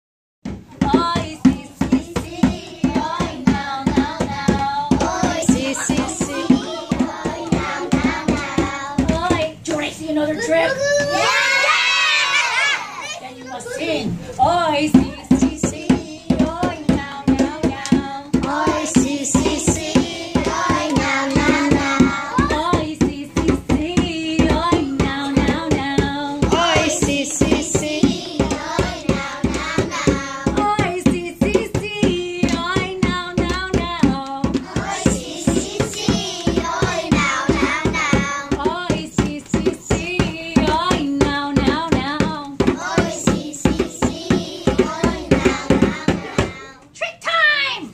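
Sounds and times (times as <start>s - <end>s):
hand drum beat: 0.4s - 9.6s, 14.8s - 46.6s
children singing together: 1.4s - 9.1s, 15.6s - 22.9s, 24.4s - 30.6s, 34.5s - 38.7s, 42.6s - 46.9s.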